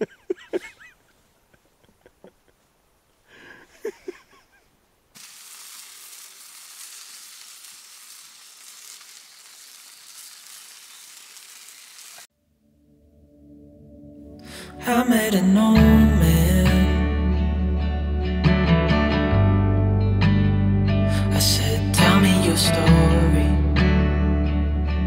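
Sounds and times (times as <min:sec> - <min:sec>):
person speaking: 0:00.0 - 0:00.9
sausages sizzling on grill: 0:05.2 - 0:12.3.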